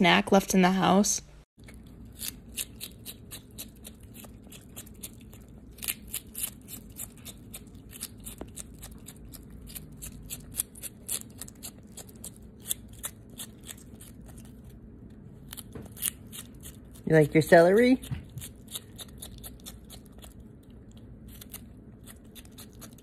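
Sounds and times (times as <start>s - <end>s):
animal crunching celery: 1.6s - 23.0s.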